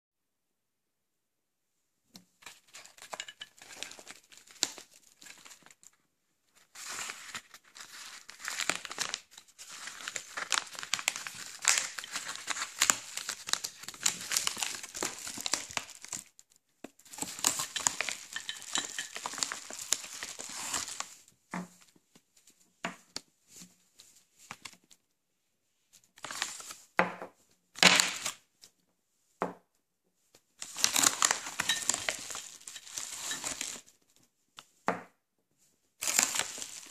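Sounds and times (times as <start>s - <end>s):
hands rummaging in mailer: 2.4s - 5.8s, 6.6s - 16.2s, 17.1s - 21.1s, 30.6s - 33.9s, 36.0s - 36.9s
padded mailer tearing and crinkling: 2.4s - 5.8s, 6.8s - 16.3s, 17.1s - 21.1s, 26.2s - 26.7s, 30.6s - 33.8s, 36.0s - 36.9s.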